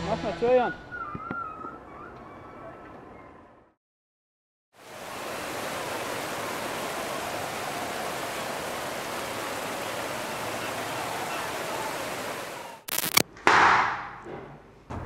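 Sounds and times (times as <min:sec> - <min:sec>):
churning sea water rushing: 0:04.8 - 0:12.8.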